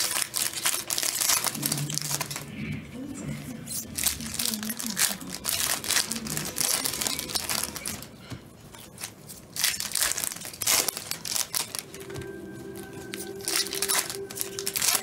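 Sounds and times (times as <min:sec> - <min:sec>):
cards being handled: 0:00.0 - 0:02.6, 0:03.8 - 0:15.0
wrappers crinkling: 0:00.0 - 0:15.0.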